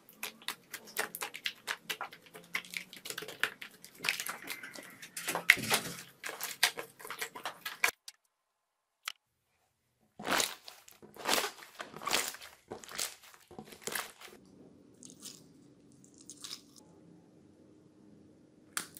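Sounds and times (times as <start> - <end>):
slime crackling and squelching: 0.0 - 8.1, 10.2 - 16.8.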